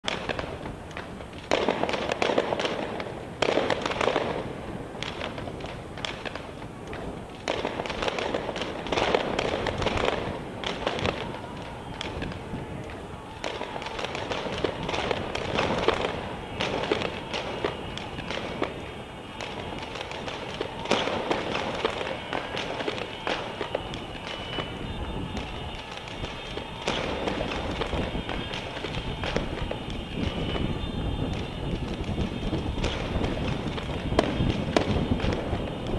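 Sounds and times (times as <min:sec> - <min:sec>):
echoing gunshots: 0:07.4 - 0:12.4, 0:13.2 - 0:30.7.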